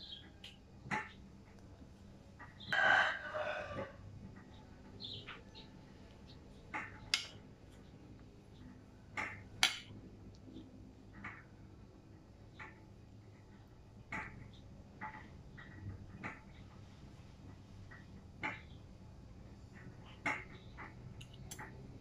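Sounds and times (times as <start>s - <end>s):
rooster crowing: 2.7s - 4.0s.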